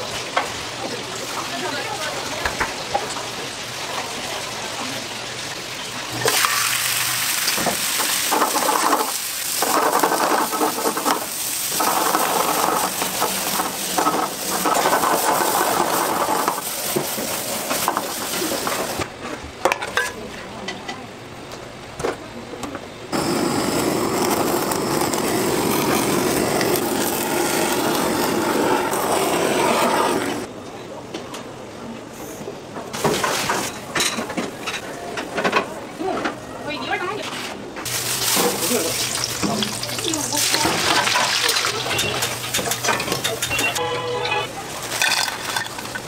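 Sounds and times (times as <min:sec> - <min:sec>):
meat sizzling in a pan: 0:02.8 - 0:19.0, 0:37.9 - 0:42.6
blow torch hissing: 0:06.2 - 0:19.0, 0:23.1 - 0:30.5.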